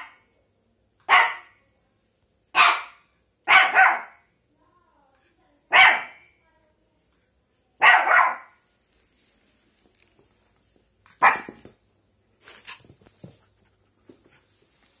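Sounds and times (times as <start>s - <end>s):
puppy barking: 1.1s - 1.6s, 2.5s - 4.3s, 5.7s - 6.2s, 7.8s - 8.6s, 11.1s - 11.6s
faint knocks and rustles: 8.9s - 15.0s.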